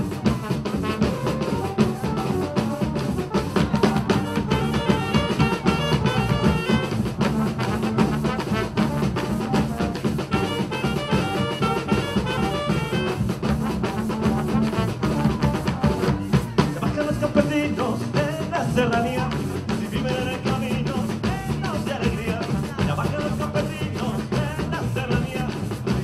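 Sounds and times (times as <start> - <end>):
horn-like melody: 0.0 - 16.6
band drum beat: 0.0 - 26.0.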